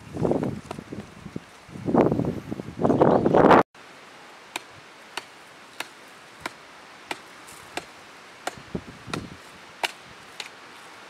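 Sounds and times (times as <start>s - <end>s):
wooden pole chopping into dry earth: 4.5s - 10.6s
soil scraping: 4.6s - 11.0s.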